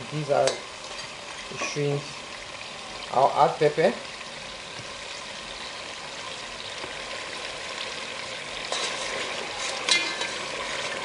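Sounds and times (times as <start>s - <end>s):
oil sizzling in a pot: 0.0s - 11.0s
metal spoon stirring pot: 8.7s - 11.0s
spoon clinking against pot: 9.7s - 10.5s.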